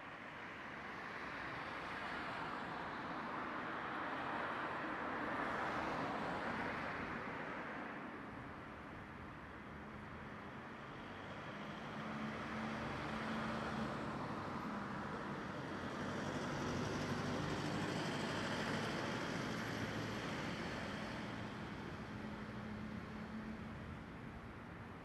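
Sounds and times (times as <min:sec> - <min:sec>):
distant road traffic: 0:08.9 - 0:25.0.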